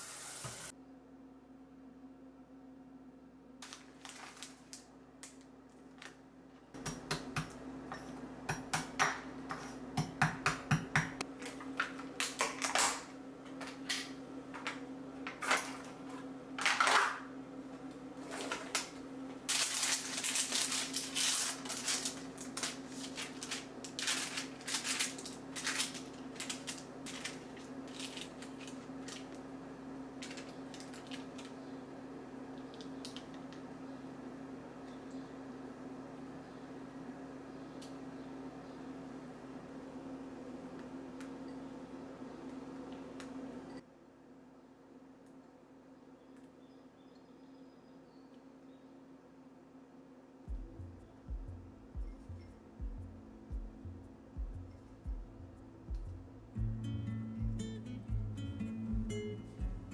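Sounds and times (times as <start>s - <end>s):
steady low hum: 13.0s - 59.9s.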